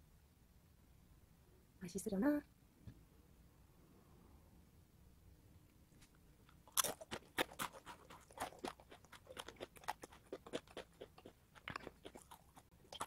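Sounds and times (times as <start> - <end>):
person crunching crispy snack: 6.6 - 13.0.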